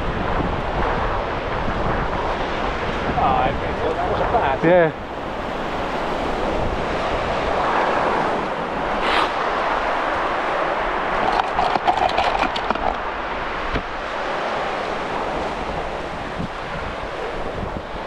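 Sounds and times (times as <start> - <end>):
surf breaking on shore: 0.0 - 18.0
wind buffeting microphone: 0.0 - 18.0
tackle rattling in plastic box: 11.2 - 13.0.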